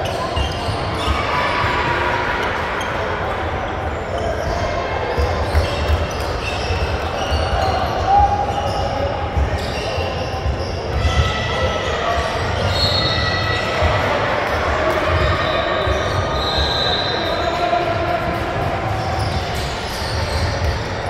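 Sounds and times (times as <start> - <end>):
murmur of voices: 0.0 - 21.0.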